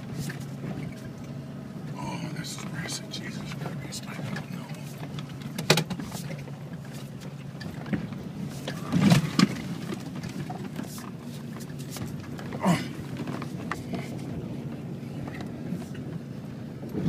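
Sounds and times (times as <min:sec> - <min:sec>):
truck engine running: 0:00.0 - 0:17.0
truck knocks and jolts: 0:07.6 - 0:16.2.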